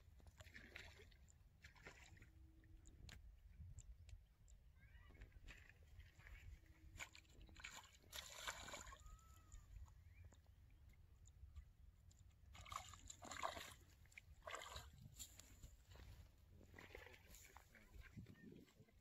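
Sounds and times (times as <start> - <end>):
fish splashing in water: 6.9 - 9.8, 12.5 - 15.0.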